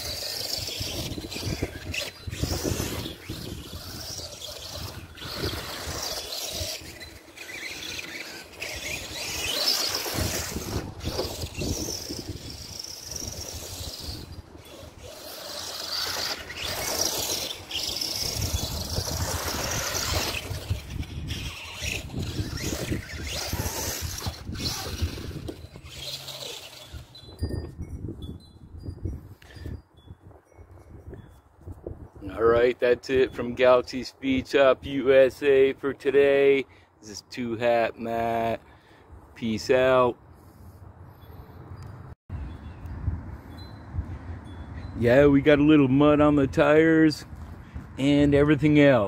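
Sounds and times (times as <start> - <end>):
tyres scrabbling over dirt: 0.0 - 27.2
electric motor whining: 0.0 - 27.8.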